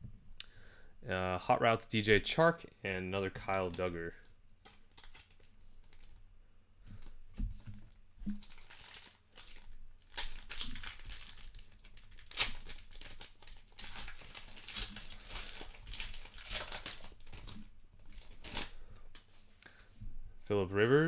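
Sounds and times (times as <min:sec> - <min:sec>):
wrapper tearing and crinkling: 0:03.4 - 0:06.2, 0:08.3 - 0:19.3.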